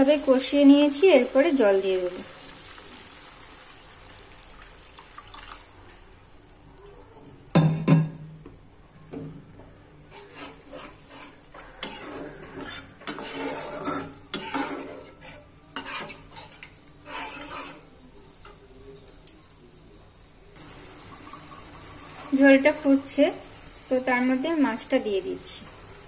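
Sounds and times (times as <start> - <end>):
spatula scraping curry in pan: 10.0 - 18.6.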